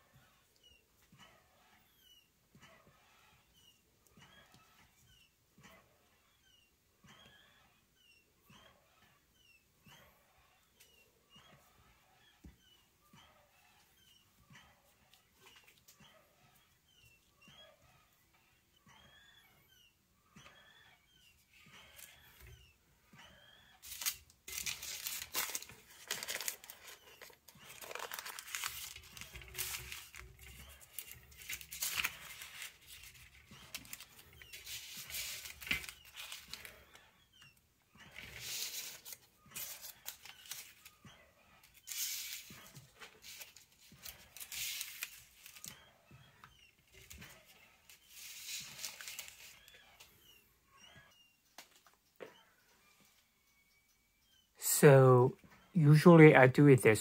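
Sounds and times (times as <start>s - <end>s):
parchment paper crinkling: 23.8s - 37.0s, 38.1s - 41.0s, 41.6s - 45.8s, 46.9s - 49.8s.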